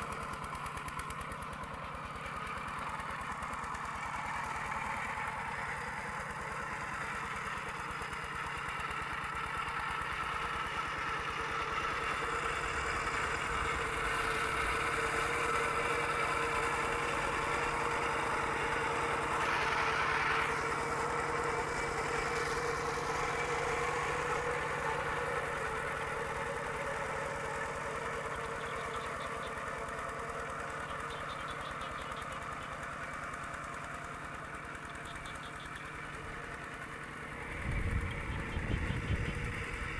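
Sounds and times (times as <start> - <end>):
diesel tractor engine knocking: 0.0 - 39.9.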